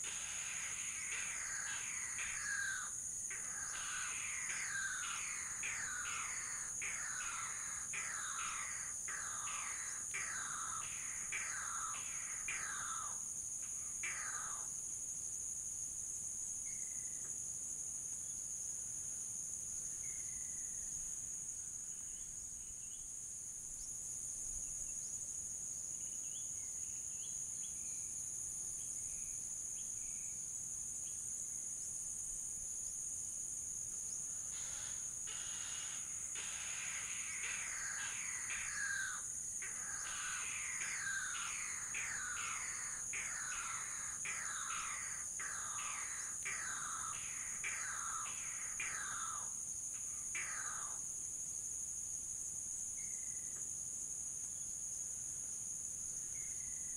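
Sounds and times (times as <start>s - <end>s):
birds calling: 0.0s - 13.2s, 14.0s - 14.7s, 34.5s - 49.5s
crickets and cicadas droning: 0.0s - 56.9s.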